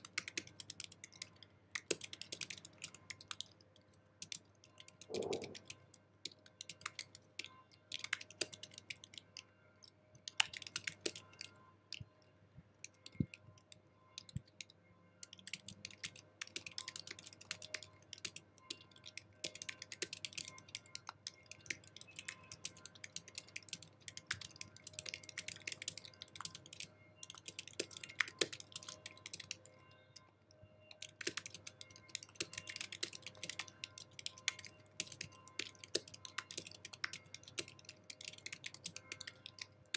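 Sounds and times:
fast typing on keyboard: 0:00.0 - 0:03.6, 0:04.2 - 0:09.2, 0:10.2 - 0:11.6, 0:14.2 - 0:29.7, 0:30.9 - 0:39.9.

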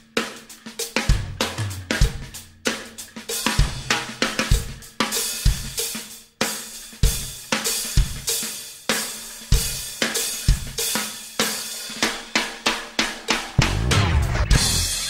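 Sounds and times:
background music with drum beat: 0:00.0 - 0:15.0.

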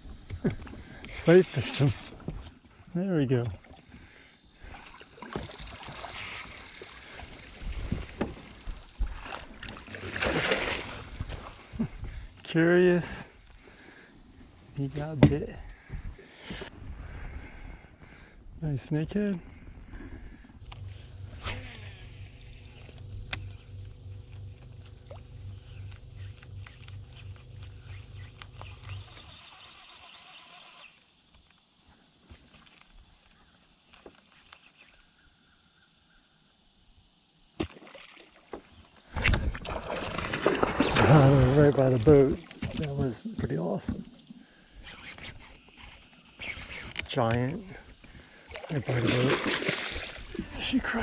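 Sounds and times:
boat motor hum: 0:00.0 - 0:30.2, 0:38.5 - 0:51.0
fish thrashing and splashing: 0:04.6 - 0:11.8, 0:39.1 - 0:42.8, 0:48.1 - 0:50.6.

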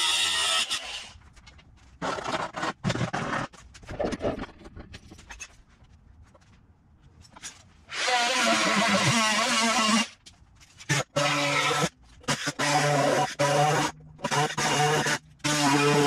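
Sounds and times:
power tool cutting sheet metal: 0:00.0 - 0:01.2, 0:07.9 - 0:10.2, 0:10.8 - 0:16.0.

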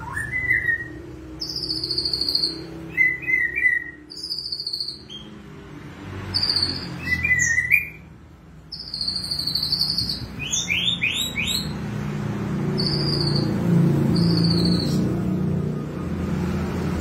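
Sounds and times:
bird singing whistled phrases: 0:00.0 - 0:05.3, 0:06.3 - 0:08.1, 0:08.7 - 0:11.8, 0:12.8 - 0:13.5, 0:14.1 - 0:15.0.

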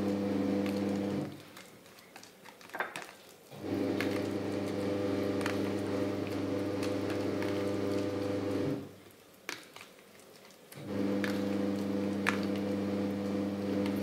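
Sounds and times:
appliance motor humming: 0:00.0 - 0:01.3, 0:03.5 - 0:08.9, 0:10.8 - 0:14.0.

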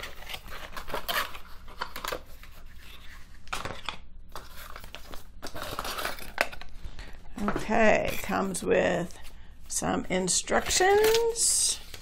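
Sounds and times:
paper rustling and crinkling: 0:00.0 - 0:08.3.

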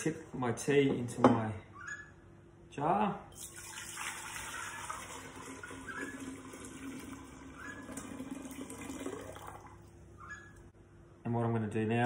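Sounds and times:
liquid pouring into glass jar: 0:03.3 - 0:09.9.

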